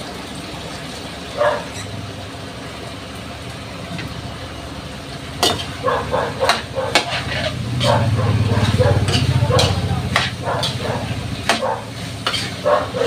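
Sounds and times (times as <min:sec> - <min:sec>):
utensil scraping in a wok: 0:05.4 - 0:13.0.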